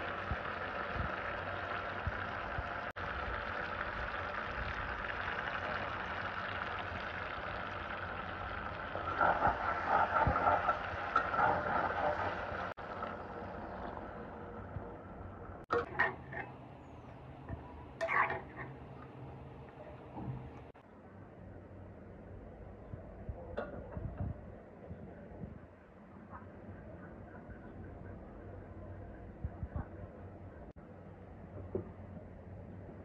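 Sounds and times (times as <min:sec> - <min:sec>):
curry simmering and sizzling: 0:00.0 - 0:20.8.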